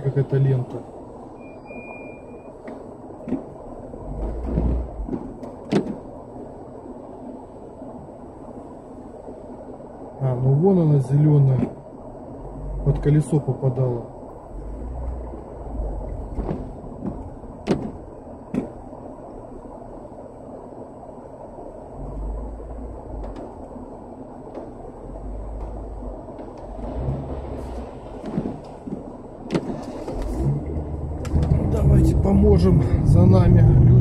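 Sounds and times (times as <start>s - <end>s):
low engine rumble: 0.0s - 34.0s
sharp knocks: 4.4s - 6.1s, 16.3s - 18.8s, 28.2s - 29.9s.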